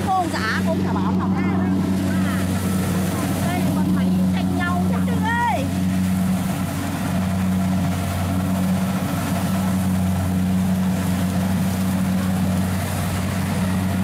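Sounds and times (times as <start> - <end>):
combine harvester engine drone: 0.0 - 14.0.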